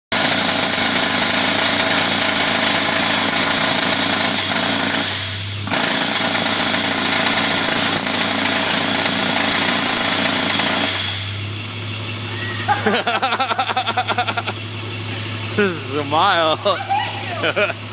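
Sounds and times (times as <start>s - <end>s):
jackhammer hammering on steel: 0.1s - 11.4s.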